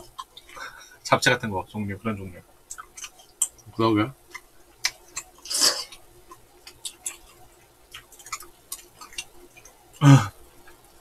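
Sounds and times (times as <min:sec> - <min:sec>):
wet chewing clicks: 0:02.7 - 0:10.0.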